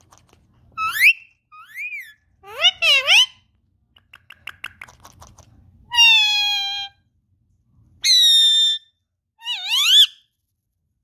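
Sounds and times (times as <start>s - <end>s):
parakeet whistly calls: 0.8s - 3.4s, 8.0s - 10.2s.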